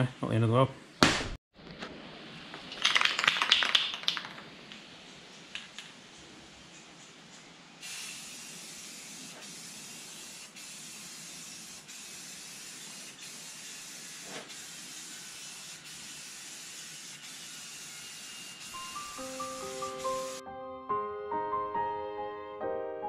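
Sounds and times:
spray paint can hissing: 0:07.8 - 0:20.4.

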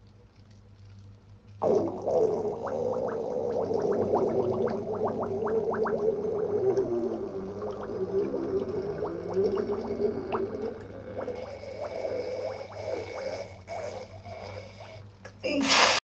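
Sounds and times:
underwater fart bubbling: 0:01.6 - 0:14.1.

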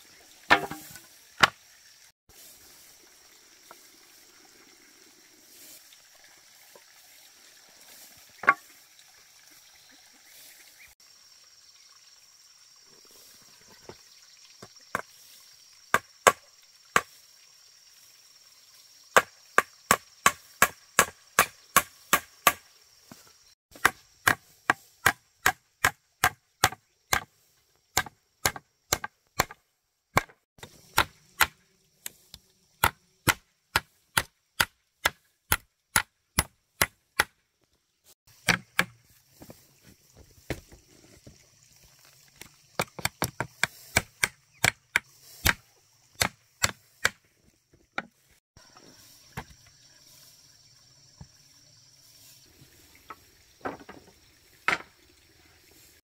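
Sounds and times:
tool chopping strikes: 0:00.5 - 0:01.6, 0:19.2 - 0:22.6, 0:23.7 - 0:27.3, 0:28.0 - 0:29.6, 0:30.2 - 0:31.6, 0:32.8 - 0:37.4, 0:38.4 - 0:39.0, 0:42.8 - 0:45.6, 0:46.2 - 0:47.2.

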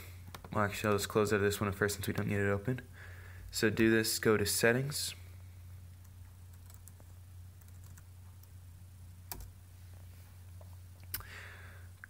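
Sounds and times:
steady low hum: 0:00.0 - 0:12.0
computer keyboard keystrokes: 0:06.5 - 0:08.5, 0:09.3 - 0:09.5.

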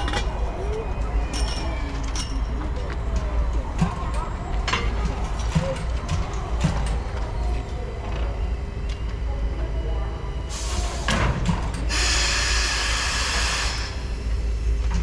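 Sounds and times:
steam hissing: 0:11.9 - 0:14.2.

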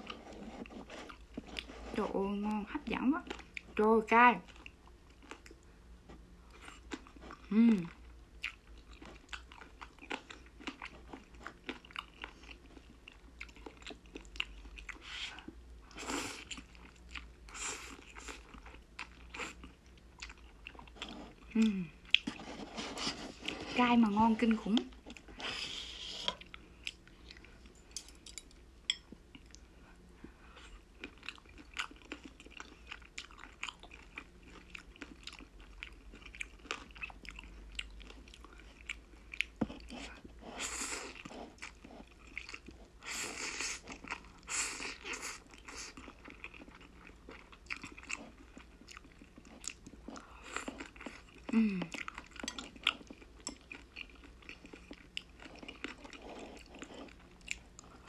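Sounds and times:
wet chewing and crunching: 0:00.0 - 0:03.8, 0:04.4 - 0:05.7, 0:06.5 - 0:58.0
person humming: 0:07.5 - 0:07.9, 0:21.6 - 0:21.9, 0:51.5 - 0:51.9.

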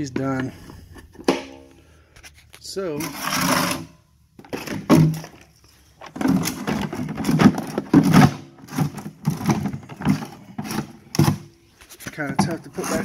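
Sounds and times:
plastic vacuum housing clunking: 0:06.0 - 0:11.5.

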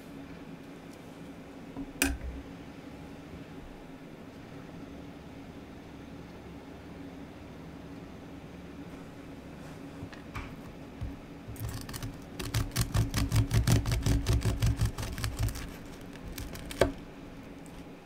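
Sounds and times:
knife crunching through crust: 0:11.5 - 0:17.0.

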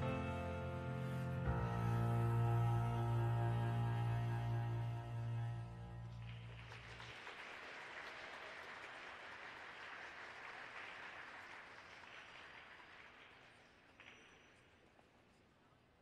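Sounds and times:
held music chord: 0:00.0 - 0:06.3
faint applause: 0:05.4 - 0:14.2.

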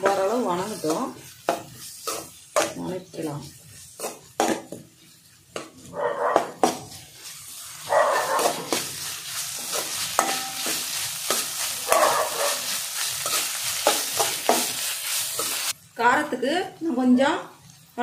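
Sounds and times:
metal spatula scraping pan: 0:00.0 - 0:15.8
onions sizzling in oil: 0:00.0 - 0:18.0
spatula knocking against pan: 0:10.2 - 0:12.2.

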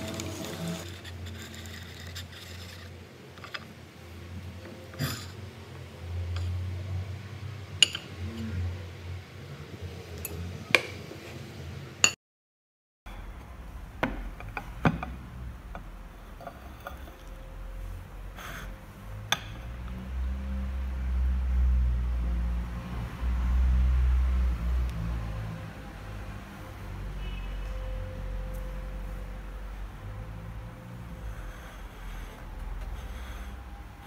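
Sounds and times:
knife scraping ceramic ramekin: 0:00.0 - 0:03.7, 0:16.2 - 0:17.4
low steady hum: 0:13.1 - 0:34.0.

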